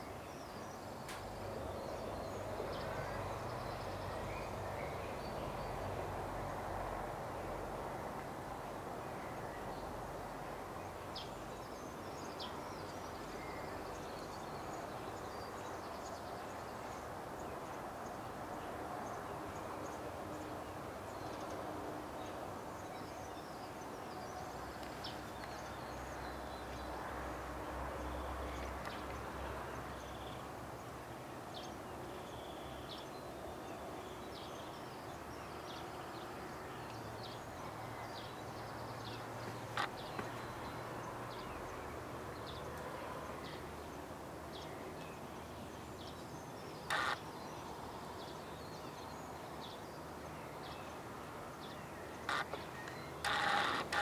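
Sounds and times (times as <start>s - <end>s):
outdoor background noise: 0.0s - 54.0s
small birds chirping: 44.5s - 51.0s, 51.6s - 54.0s.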